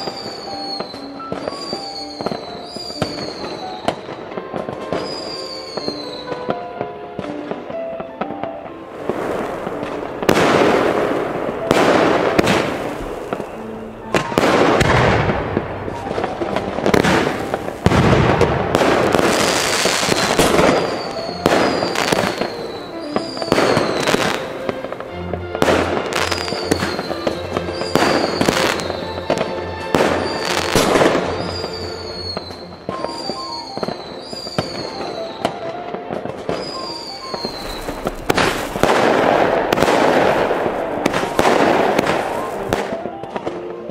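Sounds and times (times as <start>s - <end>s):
fireworks bangs and crackling: 0.0s - 43.9s
short falling whistles: 36.6s - 38.8s.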